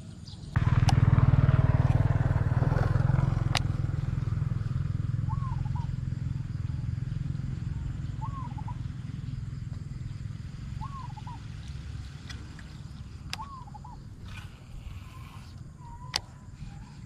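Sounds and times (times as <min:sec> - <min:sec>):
vehicle engine humming: 0:00.5 - 0:17.0
bird calling: 0:05.1 - 0:07.0, 0:07.6 - 0:09.4, 0:10.6 - 0:11.6, 0:12.4 - 0:17.0.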